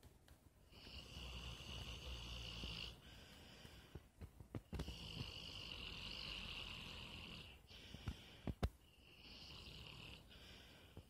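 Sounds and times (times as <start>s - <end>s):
dog snoring: 0.7s - 3.0s, 4.8s - 7.6s, 9.1s - 10.3s.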